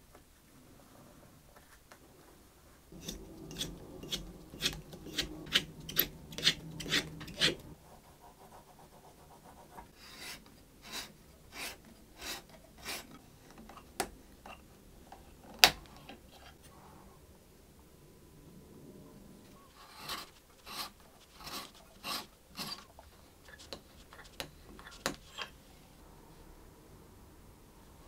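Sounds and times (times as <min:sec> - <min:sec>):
peg shaper scraping wood: 0:02.9 - 0:07.8, 0:10.0 - 0:13.2, 0:19.7 - 0:25.5
reamer scraping through wood: 0:02.9 - 0:07.8, 0:19.7 - 0:22.9.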